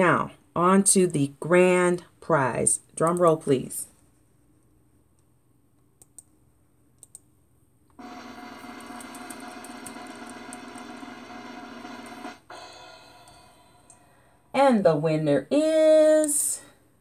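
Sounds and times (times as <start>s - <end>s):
clicks: 5.1s - 6.3s, 7.0s - 7.3s
drum roll sound effect: 8.0s - 12.9s.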